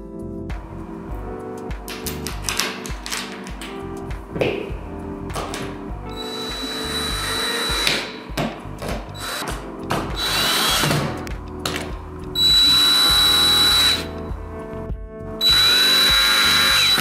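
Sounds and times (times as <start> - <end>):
cordless drill driving screws: 6.2 - 8.0, 9.2 - 9.5, 10.2 - 11.0, 12.4 - 14.1, 15.4 - 17.0.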